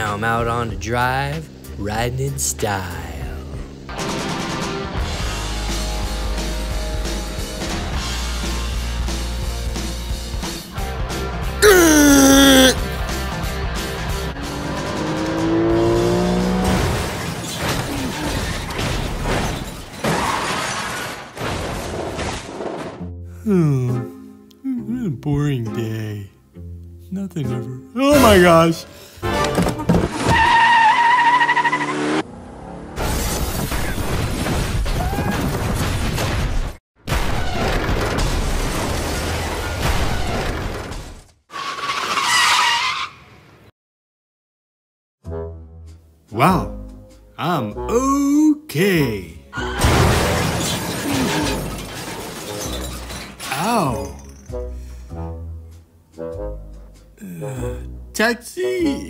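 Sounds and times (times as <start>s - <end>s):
crashing metal: 49.8s - 53.5s
shattering glass: 49.8s - 54.5s.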